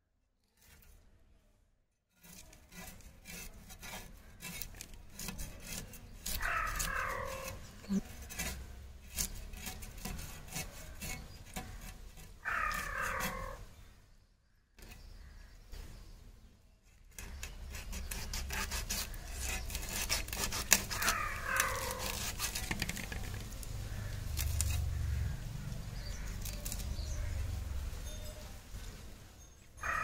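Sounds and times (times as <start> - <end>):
scraping while cleaning fish: 2.1 - 13.7, 16.9 - 27.8.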